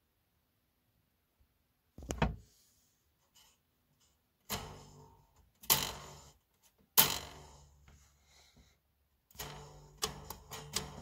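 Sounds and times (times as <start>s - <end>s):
coil spring twanging: 4.5s - 6.4s, 7.0s - 7.8s, 9.3s - 11.0s.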